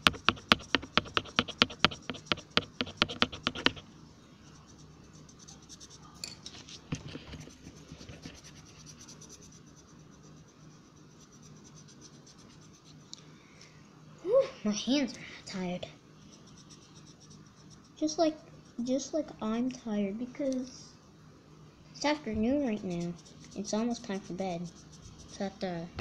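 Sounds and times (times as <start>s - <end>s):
scribbling on paper: 0.0s - 3.8s, 4.4s - 6.1s, 6.7s - 13.0s, 16.2s - 18.2s, 22.5s - 25.7s.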